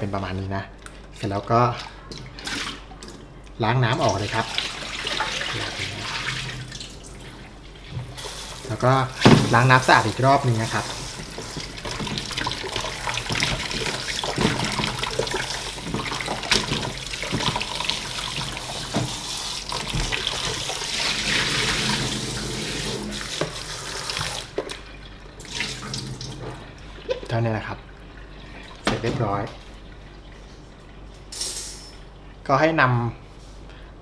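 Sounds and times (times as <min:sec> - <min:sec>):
tap running into basin: 0:03.9 - 0:30.9.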